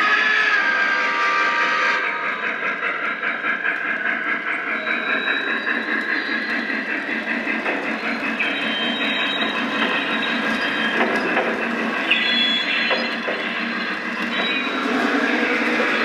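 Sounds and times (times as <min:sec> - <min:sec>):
model train rhythmic clatter: 0:00.0 - 0:16.0
held tone: 0:07.6 - 0:16.0.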